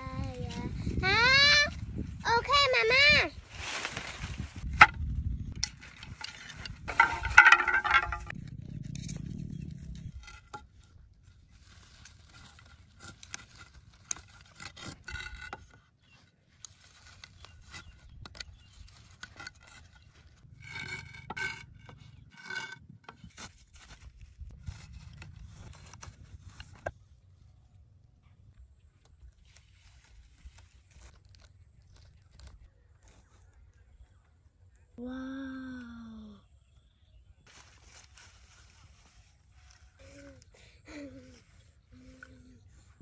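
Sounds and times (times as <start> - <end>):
rope scraping bamboo poles: 3.4 - 27.2, 29.3 - 33.4, 37.5 - 40.5
bamboo poles clicking: 4.8 - 8.4, 11.8 - 15.8.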